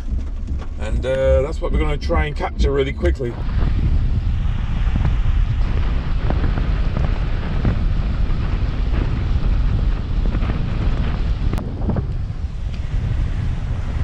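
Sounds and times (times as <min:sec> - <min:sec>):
wind buffeting microphone: 0:00.0 - 0:14.0
heavy rain pouring: 0:03.3 - 0:14.0.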